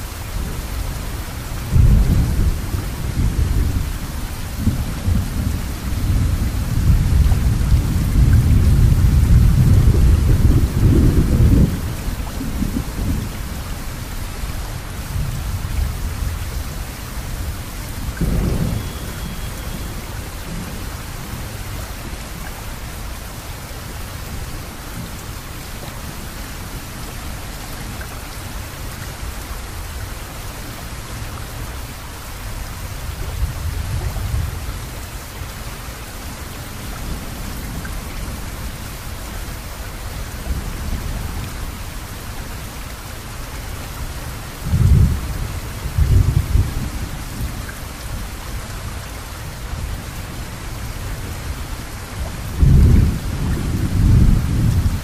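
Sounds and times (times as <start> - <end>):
steady rain: 0.0 - 55.0
thunder rumbling: 1.6 - 13.4, 17.2 - 21.5, 44.6 - 47.6, 52.2 - 55.0.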